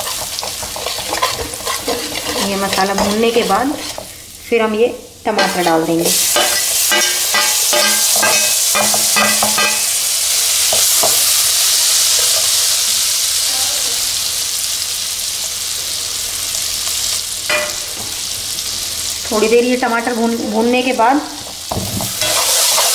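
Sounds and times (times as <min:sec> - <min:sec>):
tomatoes sizzling in hot oil: 0:00.0 - 0:22.9
metal spoon clinking on pan: 0:06.3 - 0:10.0, 0:17.5 - 0:17.9.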